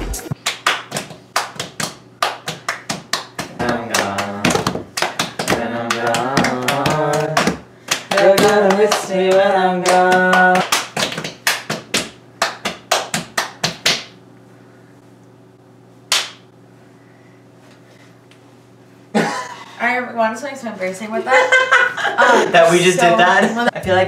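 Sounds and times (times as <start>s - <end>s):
hand claps: 0.3s - 14.2s, 16.1s - 16.4s
people singing a chant: 3.6s - 4.8s, 5.4s - 10.6s.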